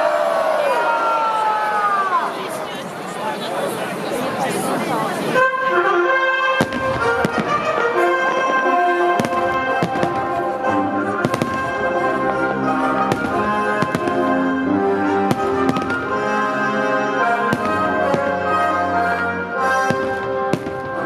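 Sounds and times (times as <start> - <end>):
festive music: 5.0 - 21.0
fireworks bangs: 6.6 - 16.5, 17.2 - 21.0.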